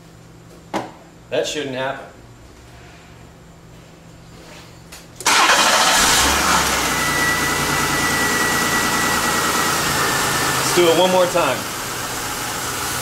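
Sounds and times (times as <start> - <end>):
car engine cranking and running: 5.2 - 13.0.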